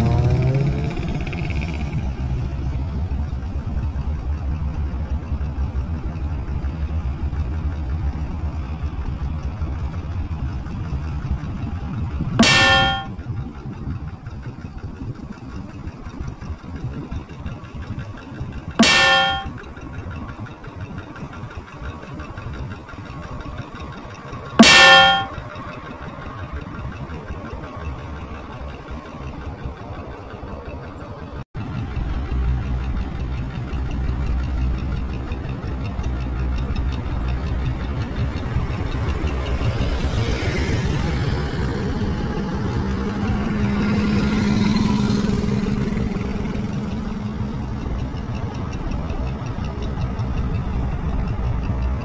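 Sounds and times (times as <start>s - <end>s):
loud metallic clangs: 12.4s - 13.1s, 18.8s - 19.5s, 24.6s - 25.4s.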